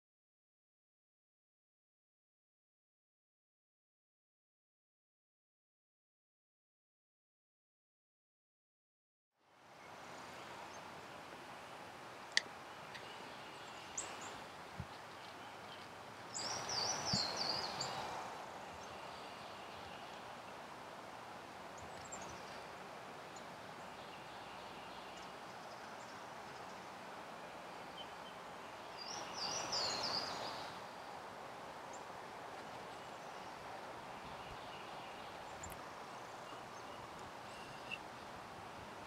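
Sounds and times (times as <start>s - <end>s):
songbird warbling: 34.2s - 38.2s.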